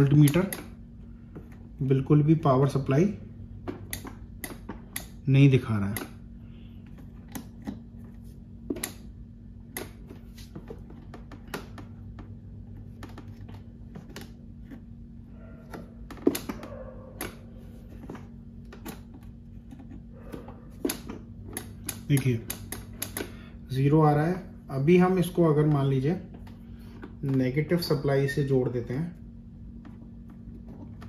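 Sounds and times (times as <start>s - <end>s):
faint low hum: 0.0s - 31.0s.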